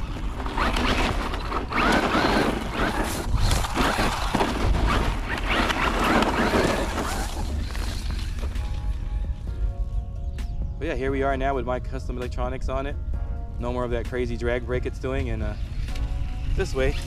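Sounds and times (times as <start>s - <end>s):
toy truck motor whining: 0.0s - 8.4s.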